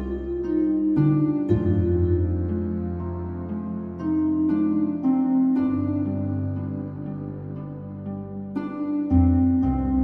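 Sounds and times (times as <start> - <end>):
deep bass notes: 0.0 - 7.3
slow soft instrumental music: 0.0 - 10.0.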